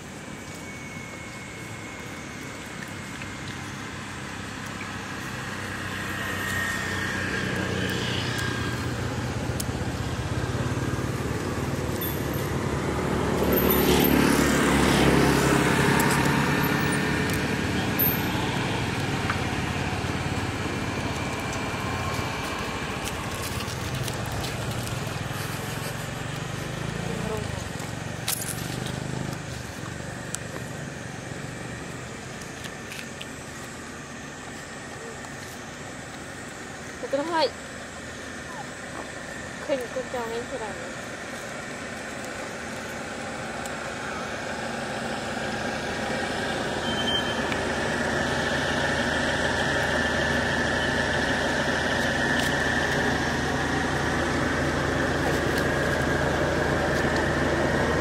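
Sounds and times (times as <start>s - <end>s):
vehicle engine passing: 3.1s - 32.6s.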